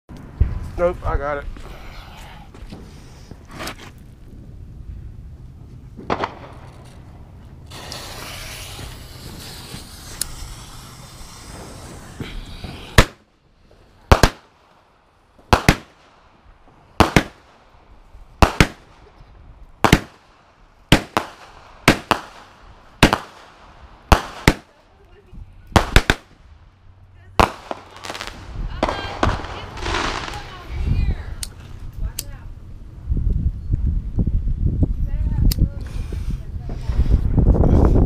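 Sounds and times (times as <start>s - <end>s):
sharp firework reports: 7.6s - 13.3s, 14.0s - 14.7s, 15.5s - 16.1s, 20.9s - 24.8s, 25.7s - 26.4s, 27.3s - 31.4s
firework hissing: 7.6s - 14.6s, 27.4s - 31.3s.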